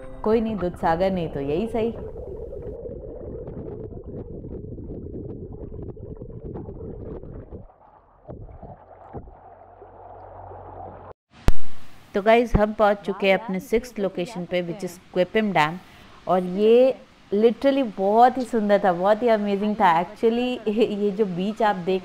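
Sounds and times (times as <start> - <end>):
muffled underwater river rushing: 0.8 - 11.9
low rumble: 1.1 - 11.6.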